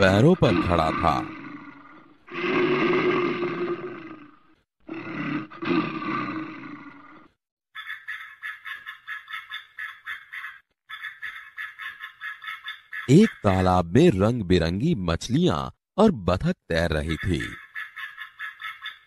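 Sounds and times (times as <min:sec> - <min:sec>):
bear roaring: 0:00.4 - 0:07.3.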